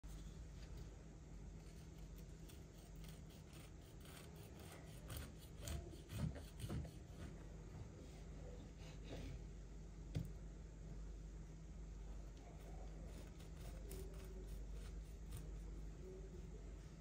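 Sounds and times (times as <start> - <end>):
knife sawing through cake: 1.8 - 7.2, 12.9 - 15.8.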